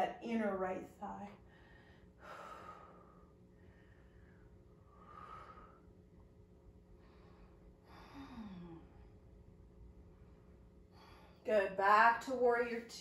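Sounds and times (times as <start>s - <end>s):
woman breathing faintly: 6.8s - 9.3s, 10.0s - 11.5s.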